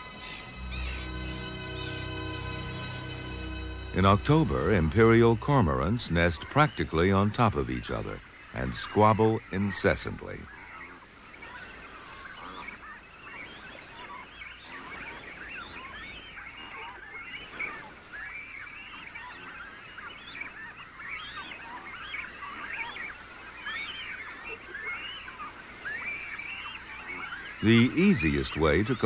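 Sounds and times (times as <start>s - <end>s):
cormorant colony calling: 0.0s - 29.0s.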